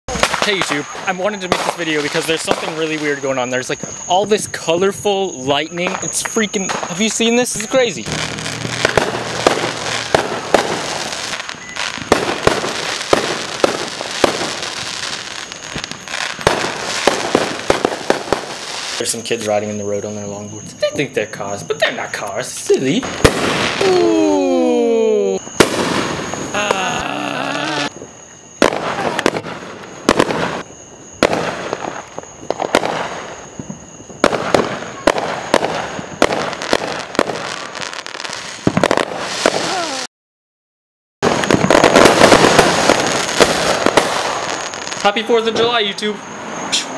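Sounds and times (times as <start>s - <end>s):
fireworks bangs and pops: 0.1s - 24.3s, 25.4s - 40.1s, 41.2s - 46.9s
steady hiss: 0.1s - 28.8s.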